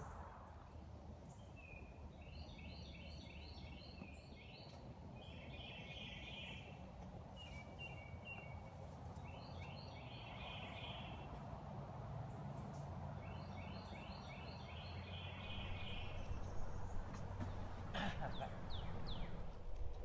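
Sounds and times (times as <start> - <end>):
songbirds chirping: 0.0 - 20.0
low background rumble: 15.4 - 20.0.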